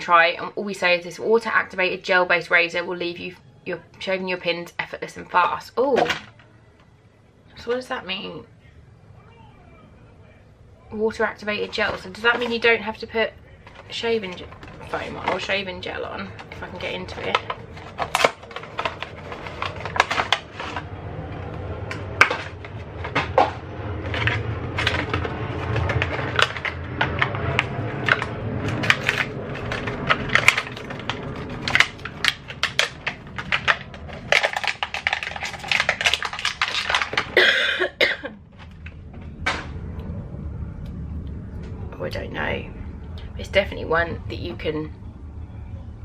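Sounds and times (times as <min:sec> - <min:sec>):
packaging crinkling and rustling: 0:13.6 - 0:15.6, 0:16.2 - 0:37.6.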